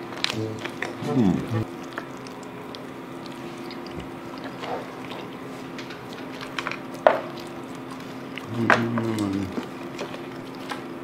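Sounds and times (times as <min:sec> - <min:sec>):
close-up chewing: 0:00.0 - 0:11.0.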